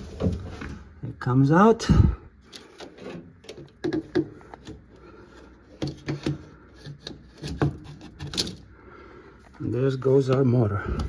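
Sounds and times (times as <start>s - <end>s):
hard plastic knocking and rubbing: 2.8s - 4.9s, 5.6s - 8.5s.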